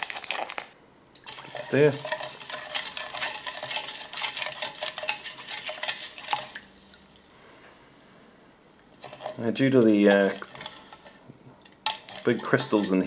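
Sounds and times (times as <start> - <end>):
spoon stirring powder in water: 1.2 - 6.7, 9.0 - 13.0.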